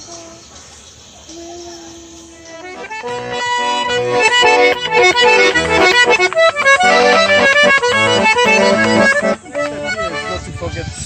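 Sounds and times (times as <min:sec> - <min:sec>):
piano accordion playing a tune: 0:02.4 - 0:11.0.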